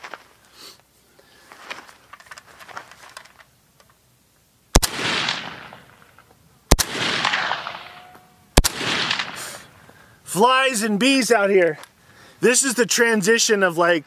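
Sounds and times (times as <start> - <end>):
rifle shots with echo: 4.8 - 6.0, 6.7 - 9.7.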